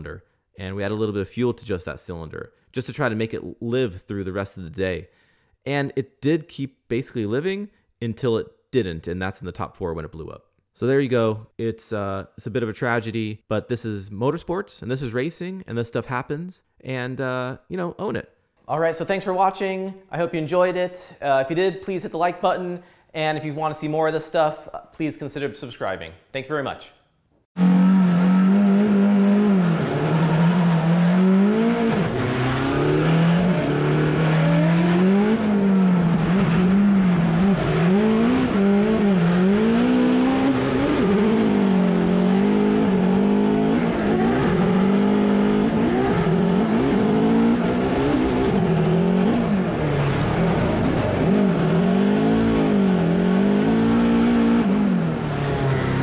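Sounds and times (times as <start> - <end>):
race car engine revving: 27.6 - 56.0.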